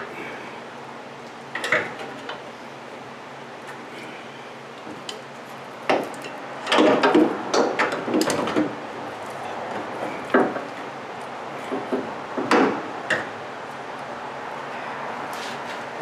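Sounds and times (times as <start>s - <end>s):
metal clunks and knocks: 5.9s - 8.8s, 9.7s - 10.7s, 11.7s - 13.3s.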